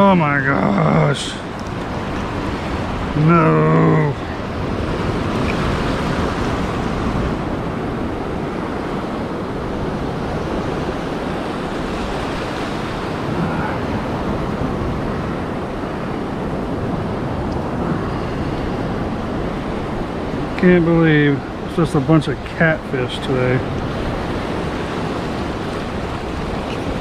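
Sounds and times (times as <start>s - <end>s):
ocean surf washing: 0.0s - 27.0s
wind on microphone: 0.0s - 27.0s.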